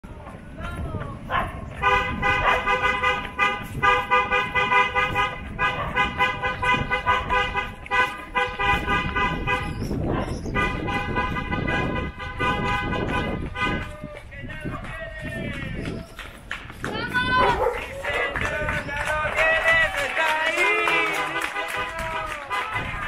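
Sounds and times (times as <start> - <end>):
car horn honking: 1.8 - 9.8, 10.5 - 13.9, 20.8 - 23.0.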